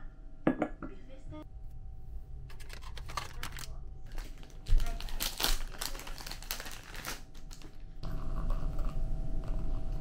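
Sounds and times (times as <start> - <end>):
sachet packaging rustling: 2.5 - 7.9.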